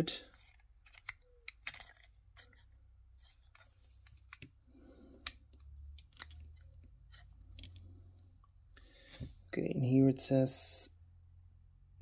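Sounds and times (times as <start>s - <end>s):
small model parts clicking: 0.4s - 2.6s.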